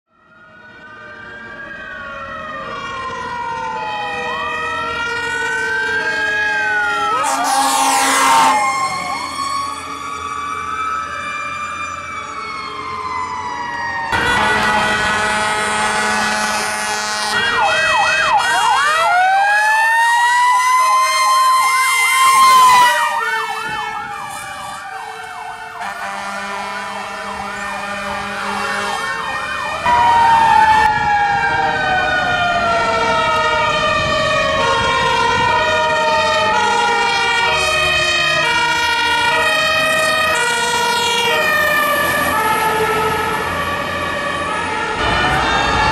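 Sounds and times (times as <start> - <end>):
electronic sirens wailing: 0.1 - 45.9
two-tone horn: 7.1 - 9.4, 14.2 - 17.7, 25.8 - 29.2.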